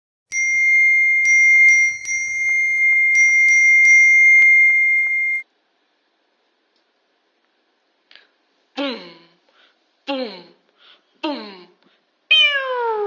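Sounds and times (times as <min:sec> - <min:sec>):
phone notification chime: 0:00.3 - 0:05.4.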